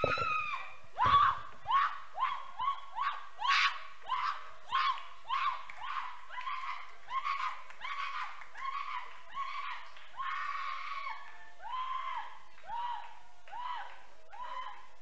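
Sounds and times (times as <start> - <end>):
woman shrieking: 0.0 - 4.4.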